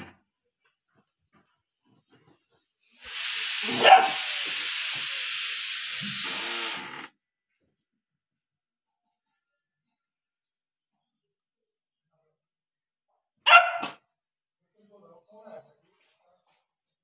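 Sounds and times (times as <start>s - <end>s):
steady hiss: 1.8s - 7.0s
puppy yapping: 3.7s - 4.3s, 13.4s - 14.0s.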